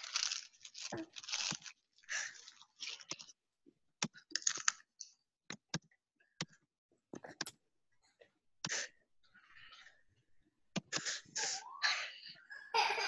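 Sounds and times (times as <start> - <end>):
rustling: 0.0 - 3.3.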